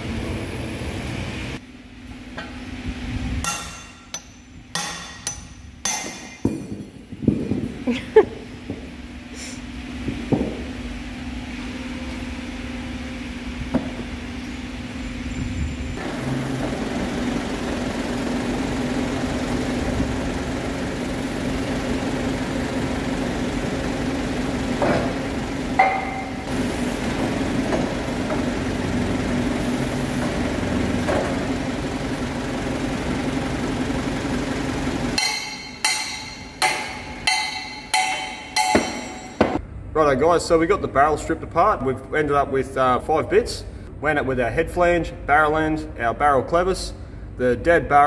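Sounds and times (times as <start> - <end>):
lathe humming: 16.0 - 39.5
sharp knocks: 35.2 - 39.6.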